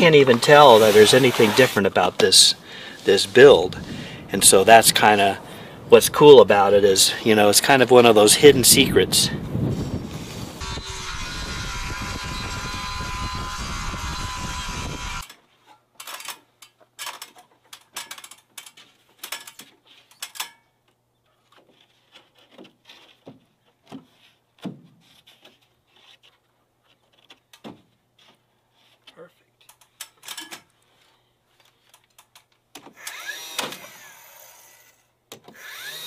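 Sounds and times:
circular saw cutting wood: 0.0 - 2.6, 10.2 - 15.3, 33.0 - 35.0, 35.6 - 36.0.

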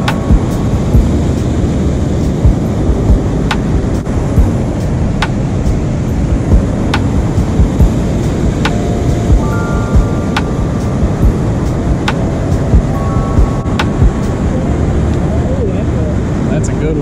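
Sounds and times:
water roaring below spillway: 0.0 - 17.0
sharp tick: 3.5 - 4.1.

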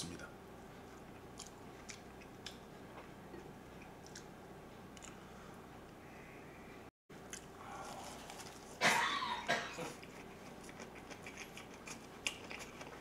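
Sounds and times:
man chewing food: 0.7 - 5.4, 7.2 - 8.8, 9.5 - 13.0.

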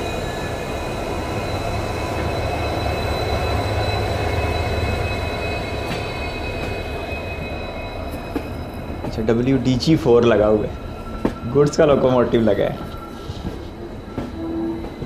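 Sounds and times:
diesel train engine rumble: 0.0 - 15.0
rail noise: 0.0 - 15.0.

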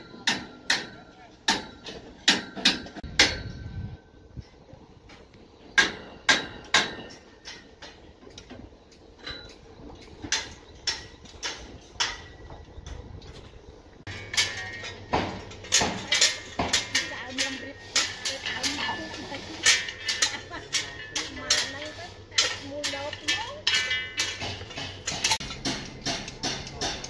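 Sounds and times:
hammer striking metal: 0.0 - 3.8, 5.8 - 8.0, 10.2 - 12.4, 14.1 - 27.0.

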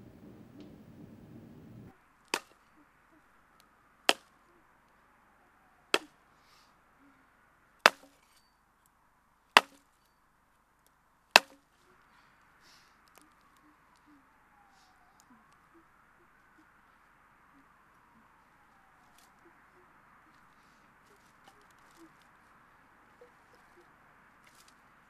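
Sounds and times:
axe chopping wood: 2.3 - 2.6, 4.1 - 4.4, 5.9 - 6.2, 7.8 - 8.4, 9.6 - 9.9, 11.3 - 11.7.

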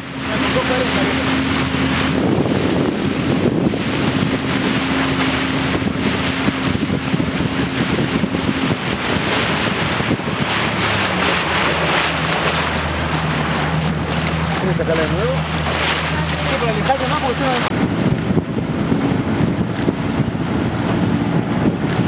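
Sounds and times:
boat motor humming: 0.0 - 22.0
water splashing along hull: 0.0 - 22.0
wind buffeting microphone: 0.0 - 22.0.

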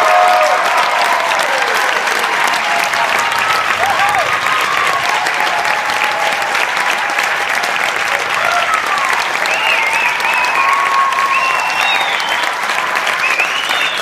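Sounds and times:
audience applauding: 0.0 - 14.0
high-pitched crowd calls: 0.0 - 14.0.

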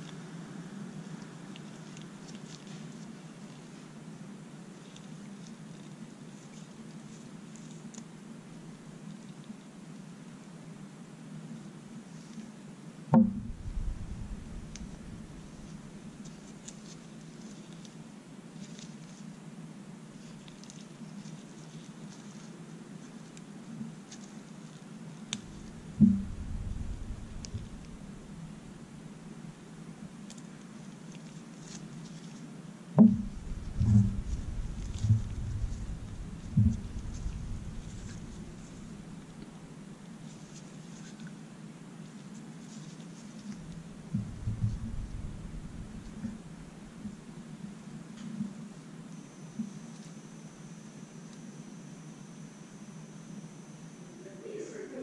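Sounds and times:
low steady hum: 0.0 - 55.0
faint scratching: 13.2 - 19.4, 20.1 - 30.0, 30.8 - 41.4, 42.1 - 47.4
gloves rustling: 25.3 - 30.4, 33.1 - 41.3.

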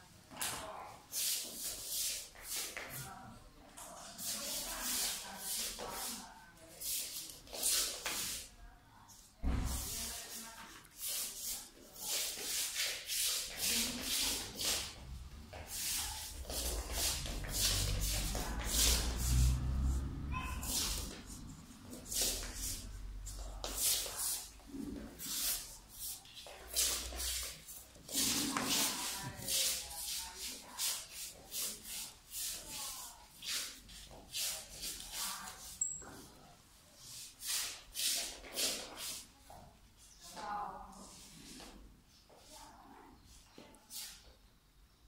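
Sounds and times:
feet sliding on wooden floor: 9.5 - 31.1.

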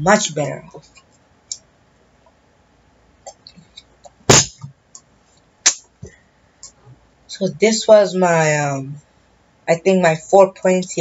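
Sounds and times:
loud sharp sound: 4.3 - 4.7.

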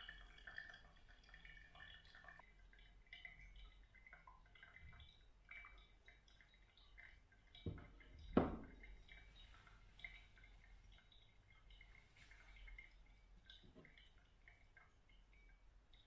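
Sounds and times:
coffee dripping: 0.0 - 16.0
kettle knocking on wood: 7.7 - 8.8.

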